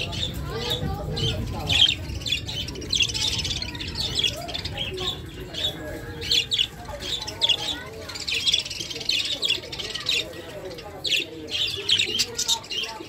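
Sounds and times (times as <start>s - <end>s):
budgerigars chirping: 0.0s - 13.0s.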